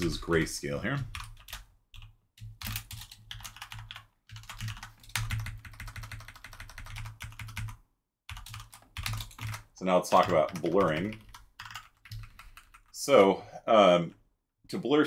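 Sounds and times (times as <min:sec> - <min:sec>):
typing on computer keyboard: 0:01.0 - 0:12.9.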